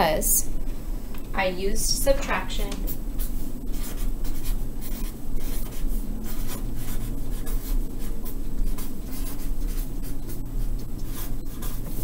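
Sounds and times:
marker writing on paper: 2.8s - 12.0s.

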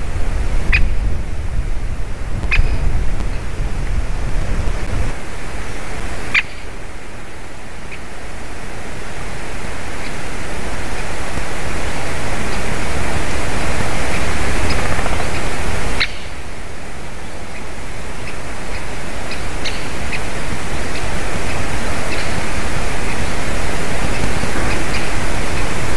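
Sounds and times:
wind and microphone hiss: 0.0s - 25.9s
woodpecker kik calls: 14.1s - 16.4s, 24.1s - 25.9s.

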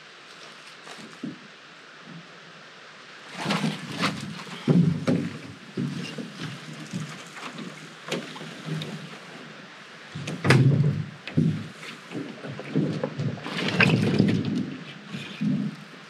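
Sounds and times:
canoe hull knocking on stones: 3.4s - 9.1s, 10.2s - 14.8s.

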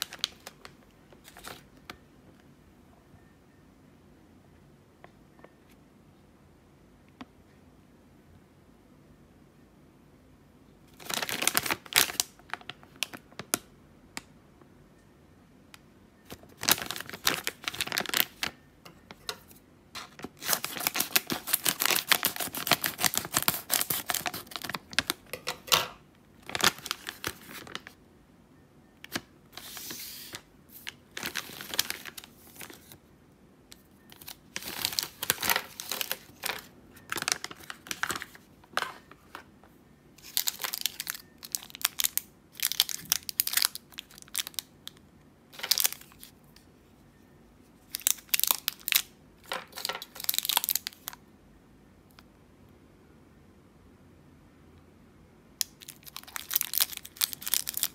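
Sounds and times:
candy wrappers rustling: 0.0s - 1.8s, 11.0s - 13.6s, 16.3s - 18.6s, 20.0s - 25.8s, 26.4s - 28.0s, 29.1s - 33.0s, 33.8s - 39.5s, 40.2s - 46.4s, 47.9s - 51.2s, 55.6s - 57.9s
plastic pouch crinkling and tearing: 11.0s - 13.3s, 16.6s - 18.6s, 20.1s - 25.2s, 26.4s - 27.9s, 29.1s - 33.0s, 34.2s - 38.4s, 40.2s - 46.3s, 47.9s - 49.1s, 49.7s - 51.2s, 55.6s - 57.9s.

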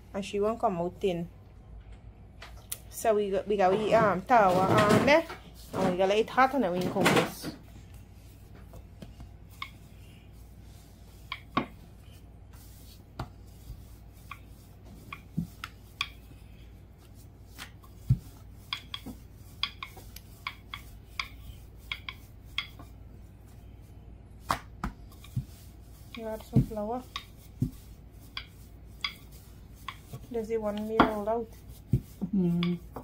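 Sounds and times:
rolling pin knocking on board: 30.8s - 31.2s.

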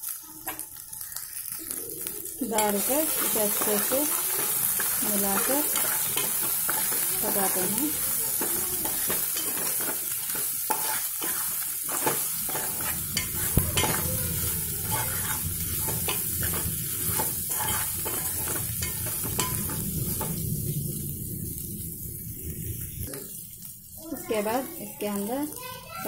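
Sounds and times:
vegetables sizzling in oil: 0.0s - 26.0s
metal spoon scraping a pan: 2.4s - 20.4s.

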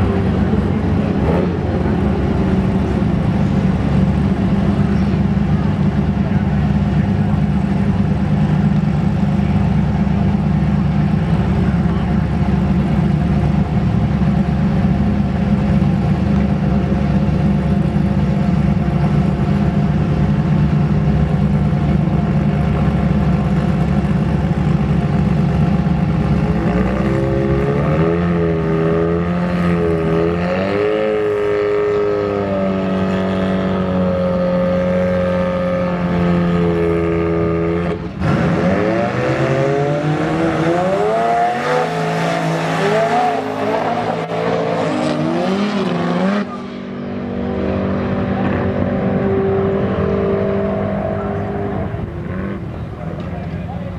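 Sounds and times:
drag car engine idling: 0.0s - 26.7s.

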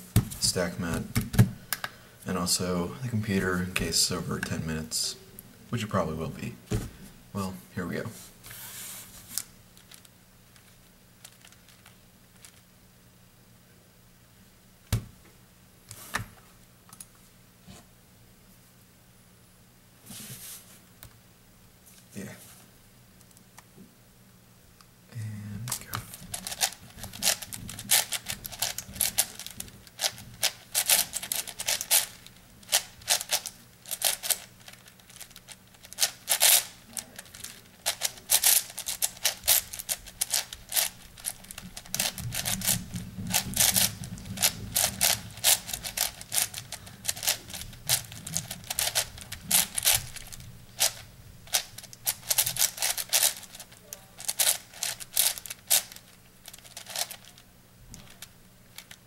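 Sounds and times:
puzzle cube plastic layers clicking: 25.7s - 59.0s.

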